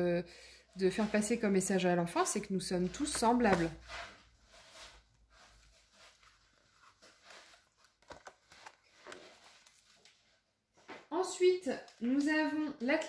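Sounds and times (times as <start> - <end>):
pages rustling: 0.9 - 10.4.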